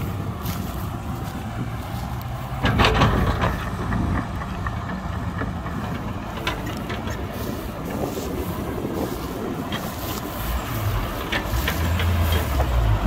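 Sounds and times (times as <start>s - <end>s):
heavy diesel engine running: 0.0s - 13.0s
clatter of knocks and rattles: 2.4s - 8.4s, 11.0s - 13.0s.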